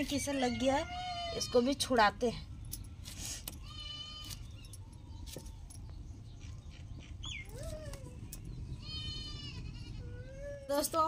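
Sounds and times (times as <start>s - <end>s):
goat bleating: 3.6s - 4.4s, 8.8s - 10.1s.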